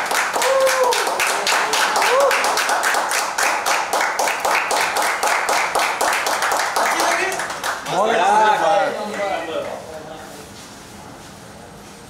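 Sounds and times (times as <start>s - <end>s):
people clapping: 0.0s - 9.5s.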